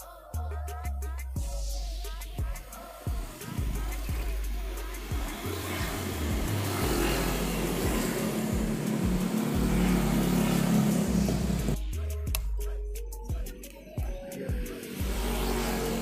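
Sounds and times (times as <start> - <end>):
background music: 0.0 - 16.0
road traffic noise: 2.6 - 11.8, 14.7 - 16.0.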